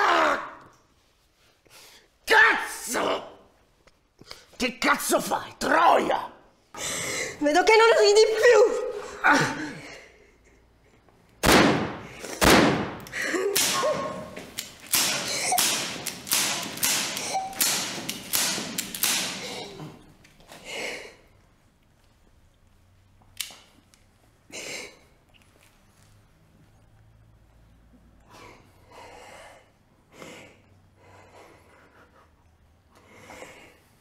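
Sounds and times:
sharp bangs: 0:11.4 - 0:19.5.

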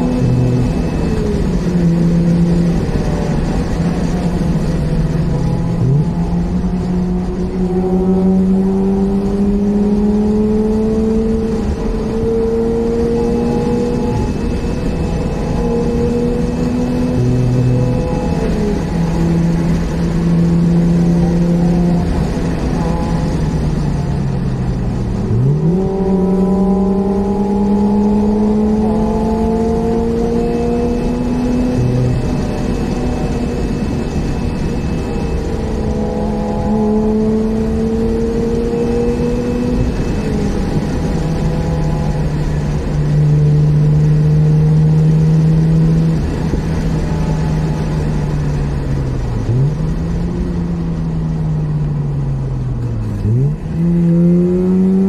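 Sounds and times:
rotary engine accelerating: 0:00.0 - 0:55.0
tyre and road noise: 0:00.0 - 0:55.0.

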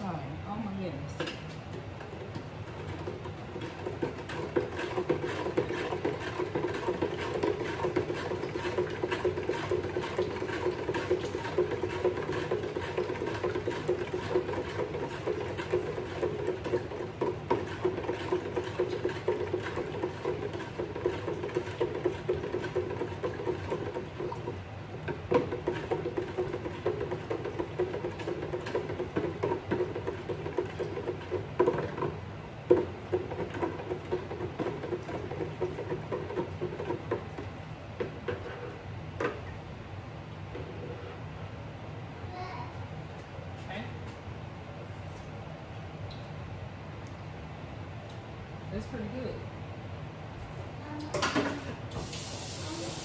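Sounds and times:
liquid swishing in plastic jug: 0:02.6 - 0:24.6.

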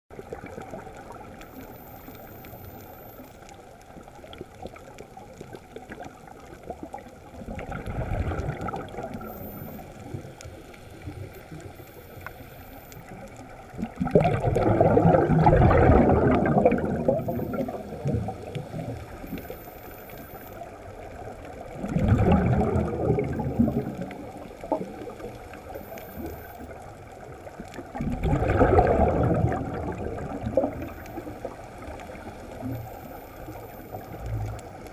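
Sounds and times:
regulator bubbling underwater: 0:00.1 - 0:34.9.

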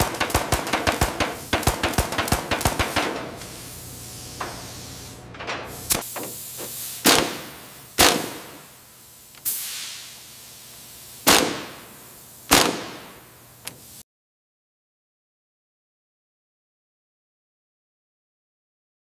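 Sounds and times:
sharp bangs: 0:00.0 - 0:03.4, 0:07.0 - 0:08.6, 0:11.3 - 0:11.8, 0:12.5 - 0:13.2.

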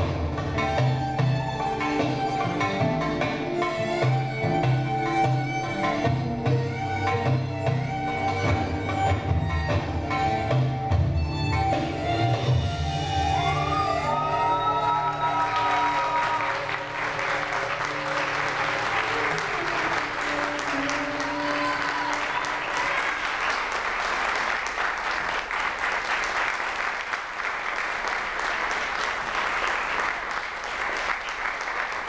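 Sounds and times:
audience applauding: 0:13.6 - 0:32.0.

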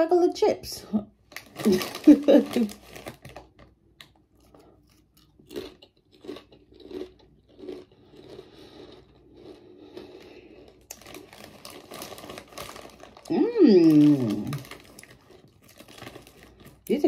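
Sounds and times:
potato chips crunching: 0:01.3 - 0:17.0
chewing: 0:03.0 - 0:11.6.

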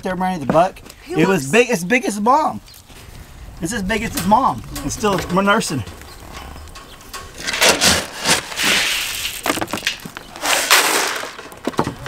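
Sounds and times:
clicks and rustles: 0:02.6 - 0:12.0.

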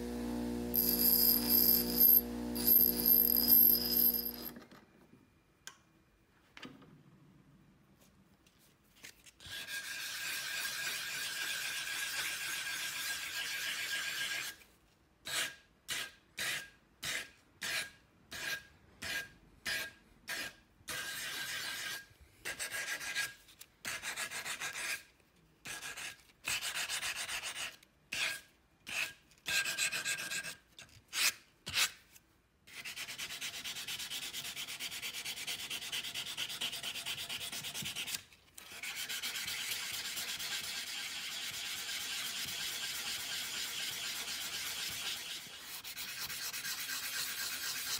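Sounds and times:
sanding pad scratching metal: 0:00.7 - 0:04.5, 0:32.7 - 0:47.9.

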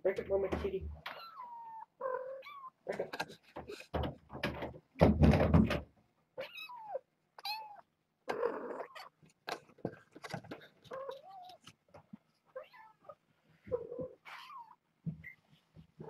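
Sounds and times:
cats meowing: 0:01.0 - 0:03.7, 0:06.4 - 0:09.2, 0:10.8 - 0:11.8, 0:12.4 - 0:15.4
loud thump and rustle: 0:03.7 - 0:05.9.

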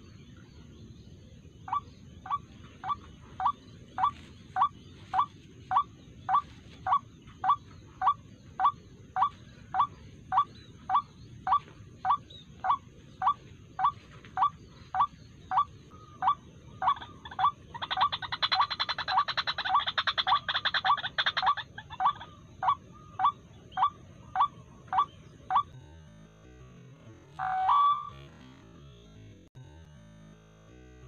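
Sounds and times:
waterhen calling: 0:01.7 - 0:25.7.

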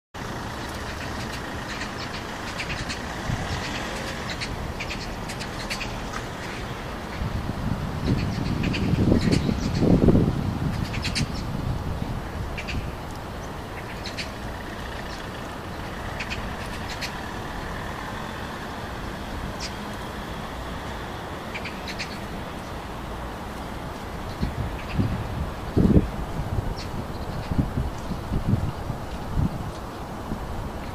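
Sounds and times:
background traffic rumble: 0:00.2 - 0:30.9.

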